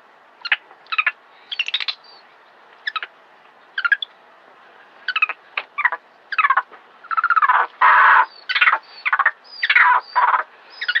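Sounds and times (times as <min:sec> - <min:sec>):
monkey screaming harshly: 0:07.1 - 0:08.8.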